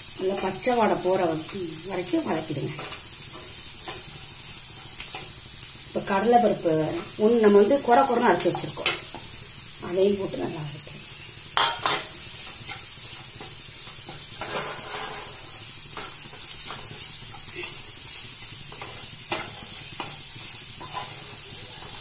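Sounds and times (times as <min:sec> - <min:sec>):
food sizzling: 0:00.0 - 0:22.0
spatula scraping frying pan: 0:02.7 - 0:05.5, 0:11.2 - 0:22.0.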